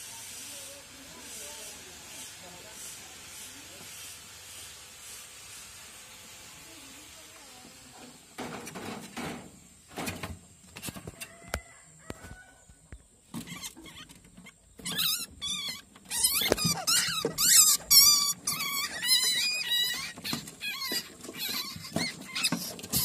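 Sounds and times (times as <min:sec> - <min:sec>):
rats squealing: 0:13.3 - 0:23.0.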